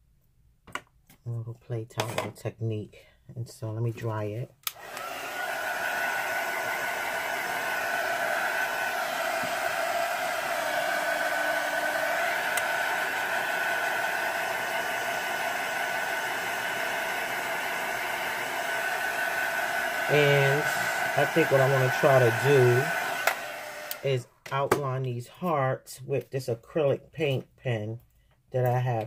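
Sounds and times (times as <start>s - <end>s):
electric dryer blowing: 4.6s - 24.2s.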